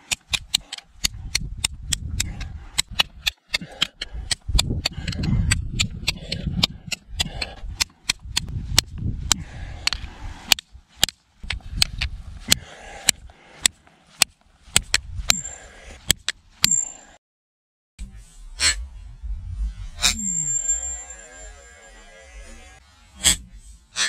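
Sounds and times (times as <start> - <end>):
low rumble: 18.0 - 22.6.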